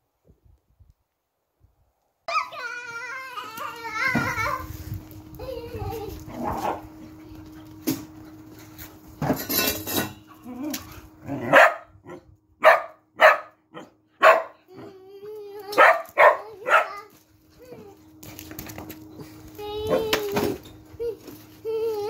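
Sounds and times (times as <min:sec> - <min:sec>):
faint steady hum: 0:00.0 - 0:22.0
dog barking: 0:11.4 - 0:14.6, 0:15.8 - 0:17.0.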